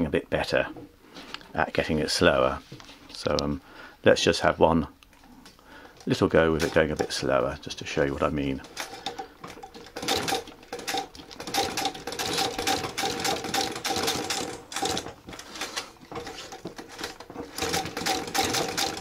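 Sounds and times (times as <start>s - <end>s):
sewing machine stitching: 8.5s - 19.0s.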